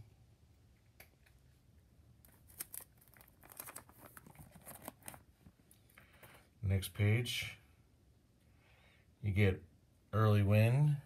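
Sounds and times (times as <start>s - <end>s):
plastic sleeve pages crinkling: 2.2s - 5.6s.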